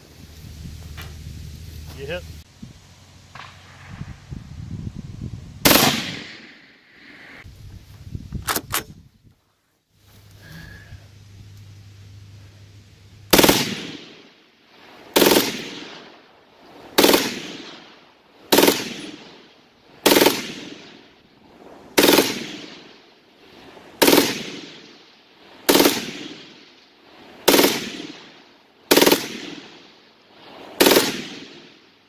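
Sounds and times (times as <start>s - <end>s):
machine gun bursts: 13.3s - 14.0s, 15.2s - 15.7s, 17.0s - 17.4s, 18.5s - 19.2s, 20.0s - 20.7s, 22.0s - 22.6s, 24.0s - 24.4s, 25.7s - 26.2s, 27.4s - 27.9s, 28.9s - 29.4s, 30.8s - 31.3s.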